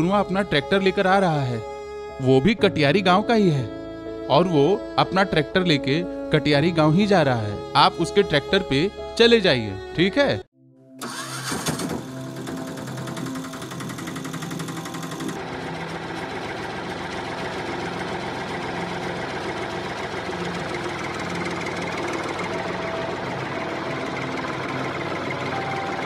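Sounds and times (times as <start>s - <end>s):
tractor engine chugging: 11.0s - 26.0s.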